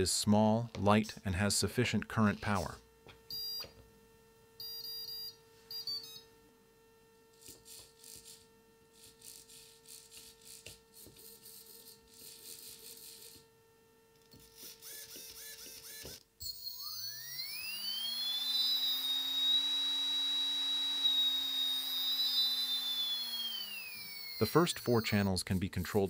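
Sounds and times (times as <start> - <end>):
servos whirring: 14.3 - 26.0
electric motor whining: 14.4 - 25.9.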